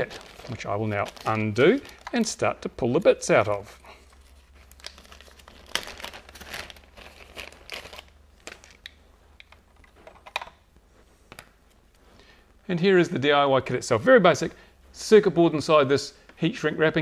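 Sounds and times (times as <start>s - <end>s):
plastic bag crinkling: 0.0s - 3.2s, 3.9s - 10.4s.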